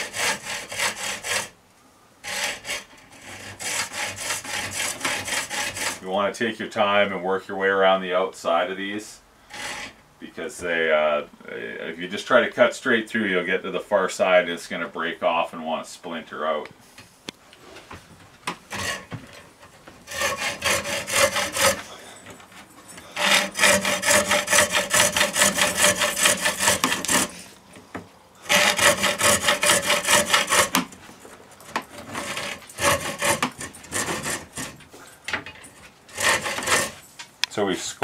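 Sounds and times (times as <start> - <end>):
hacksaw cutting a rod: 0.0 - 1.5, 2.2 - 6.0, 9.5 - 10.0, 18.7 - 19.2, 20.1 - 21.9, 23.1 - 27.6, 28.4 - 31.0, 31.7 - 34.8, 36.1 - 37.1.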